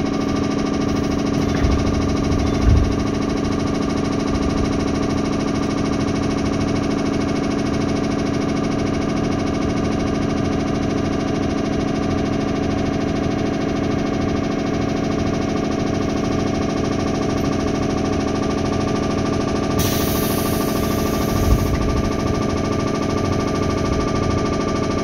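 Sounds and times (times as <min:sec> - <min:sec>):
electric train running: 0:00.0 - 0:08.7, 0:10.6 - 0:25.0
air hiss: 0:19.8 - 0:21.8.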